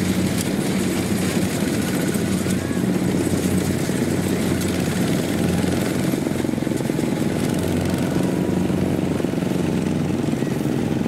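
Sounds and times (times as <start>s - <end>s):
diesel engine chugging: 0.0s - 11.0s.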